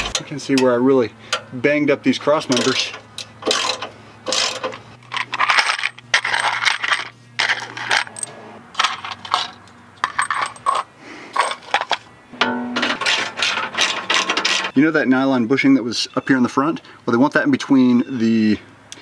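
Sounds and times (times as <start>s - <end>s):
metal bolts clinking into bowl: 2.5s - 14.8s.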